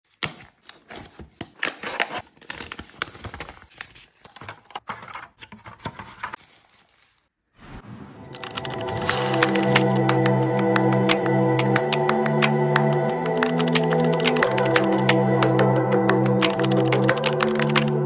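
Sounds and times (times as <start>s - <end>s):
cardboard and paper rustling: 0.0s - 7.3s.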